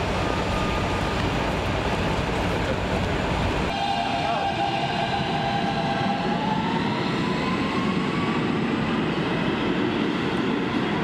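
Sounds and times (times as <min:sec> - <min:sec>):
subway train motors whining: 0:00.0 - 0:11.0
wheels rumbling on rails: 0:00.0 - 0:11.0.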